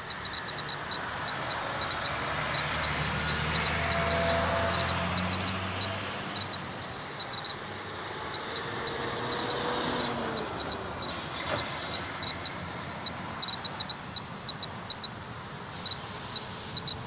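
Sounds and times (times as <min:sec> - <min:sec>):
vehicle passing: 0:00.0 - 0:15.0
road traffic passing: 0:00.0 - 0:17.0.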